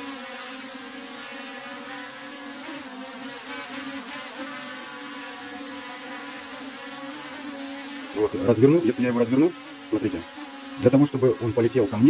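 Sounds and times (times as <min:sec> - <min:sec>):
quadcopter propellers buzzing: 0:00.0 - 0:12.0.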